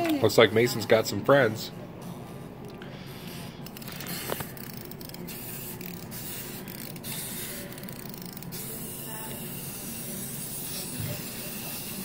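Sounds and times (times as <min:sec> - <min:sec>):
wind-up toy being wound: 0:03.6 - 0:12.0.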